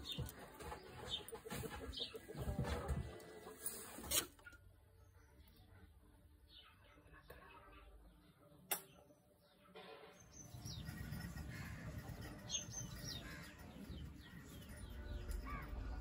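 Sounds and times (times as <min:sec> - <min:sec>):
birds chirping: 0:00.0 - 0:03.8, 0:04.4 - 0:16.0
sharp click: 0:08.7 - 0:09.0.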